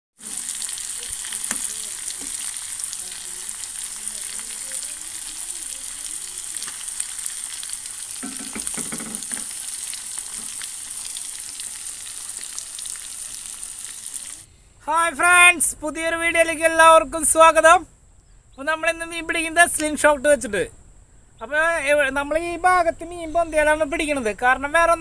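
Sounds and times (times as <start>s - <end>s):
fish frying in hot oil: 0.2s - 14.5s.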